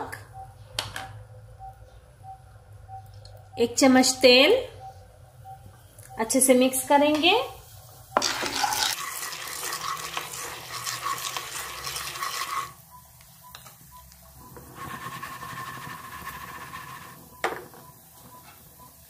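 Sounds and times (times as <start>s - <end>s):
popcorn kernels rattling in pan: 8.2s - 12.7s.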